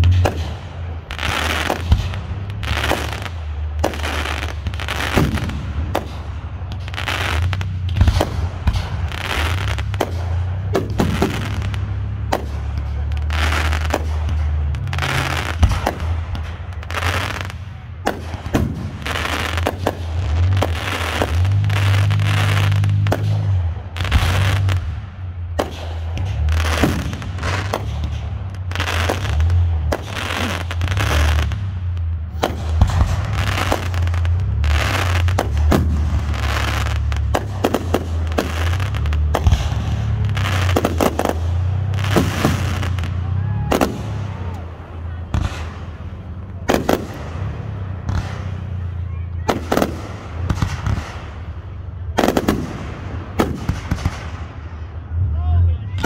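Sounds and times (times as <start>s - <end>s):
firework shells bursting: 0.0s - 48.8s.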